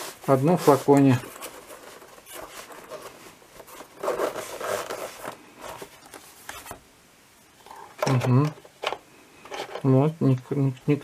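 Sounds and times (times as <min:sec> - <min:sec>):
scratchy rubs of case handling: 0:00.0 - 0:06.8
zipper pulled open: 0:03.8 - 0:05.8.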